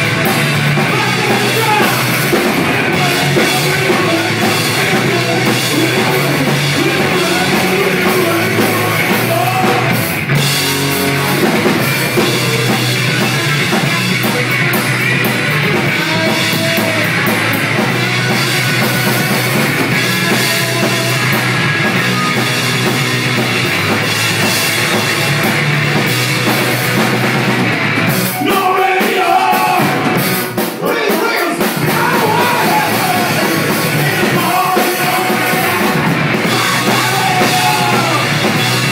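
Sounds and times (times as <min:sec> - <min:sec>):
bass guitar: 0:00.0 - 0:38.9
drum kit: 0:00.0 - 0:38.9
electric guitars: 0:00.0 - 0:38.9
person singing lead vocal: 0:00.8 - 0:10.1, 0:15.8 - 0:17.4, 0:20.0 - 0:21.5, 0:28.3 - 0:38.9.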